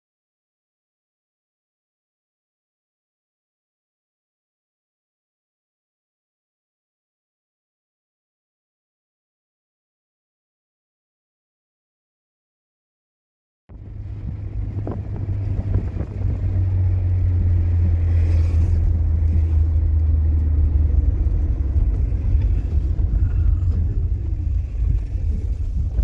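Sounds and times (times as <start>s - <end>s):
car engine and road noise: 13.7s - 26.0s.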